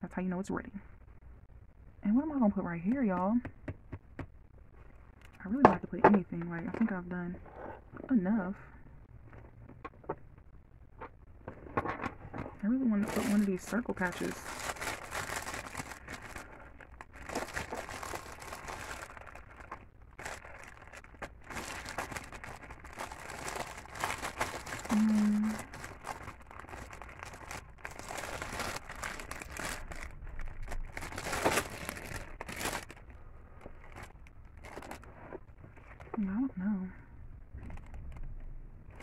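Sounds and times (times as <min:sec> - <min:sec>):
plastic packaging crinkling: 0:12.9 - 0:36.2
person humming: 0:24.8 - 0:25.7.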